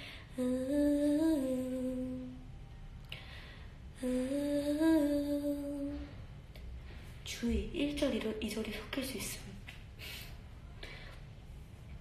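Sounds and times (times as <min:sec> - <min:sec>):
woman humming a slow melody: 0:00.3 - 0:02.5, 0:04.0 - 0:06.2.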